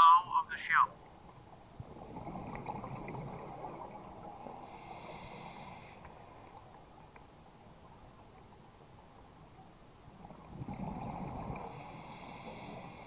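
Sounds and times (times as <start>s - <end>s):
diver exhaling bubbles underwater: 1.8s - 5.7s.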